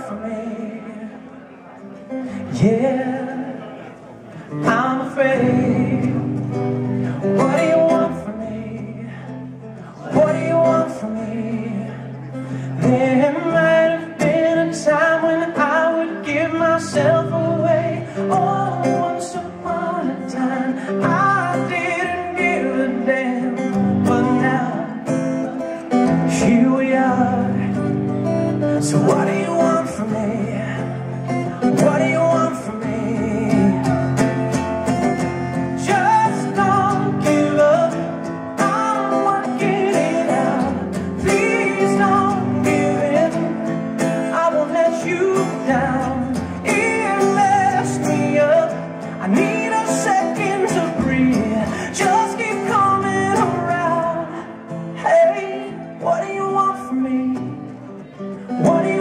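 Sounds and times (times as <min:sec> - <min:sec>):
man singing into microphone: 0:00.0 - 0:59.0
strummed acoustic guitar: 0:00.0 - 0:59.0.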